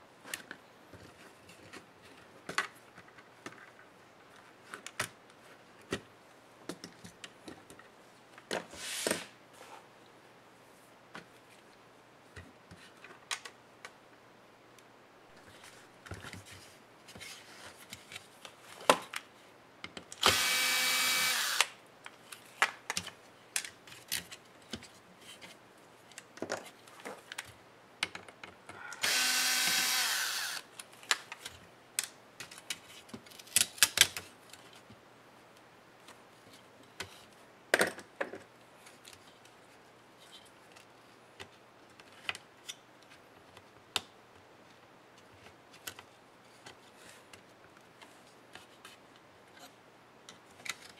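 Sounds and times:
plastic parts and screws clicking: 19.8s - 24.8s, 26.1s - 34.8s
electric drill running: 20.2s - 21.8s, 29.0s - 30.7s.

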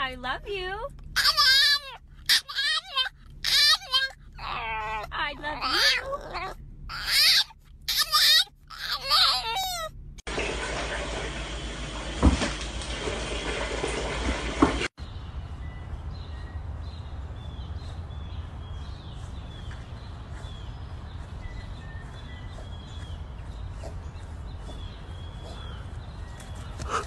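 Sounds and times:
low steady rumble: 0.0s - 10.3s
small birds chirping: 15.0s - 27.0s.

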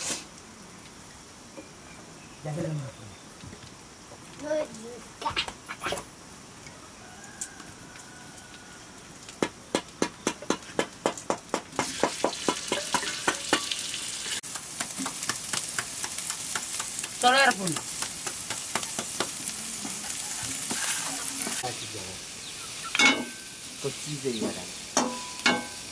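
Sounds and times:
meat sizzling in hot oil: 0.0s - 25.9s
ladle scraping a pan: 19.8s - 21.6s.

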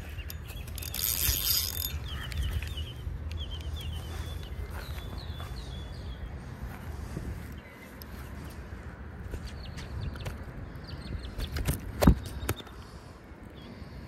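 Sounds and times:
spinning reel being cranked: 0.3s - 2.4s.

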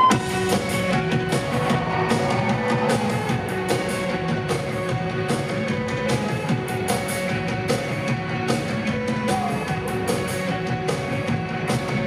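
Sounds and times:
rock band playing live: 0.0s - 12.0s
steady drum beat: 0.0s - 12.0s.

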